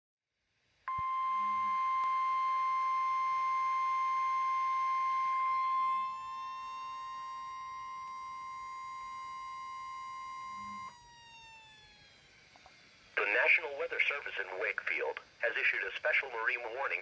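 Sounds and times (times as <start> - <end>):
siren-like rising tone: 0.9 - 13.2
steady warning alarm tone: 0.9 - 17.0.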